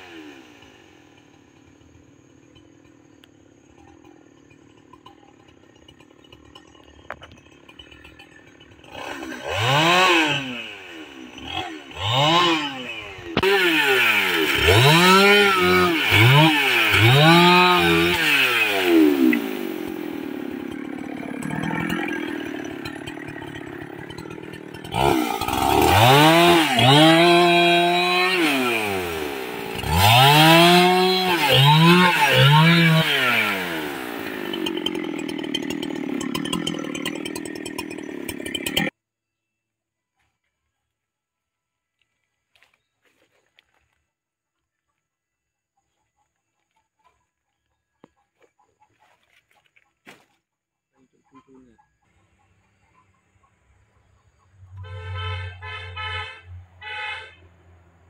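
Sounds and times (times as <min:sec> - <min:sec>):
chainsaw revving and idling: 0:00.0 - 0:39.0.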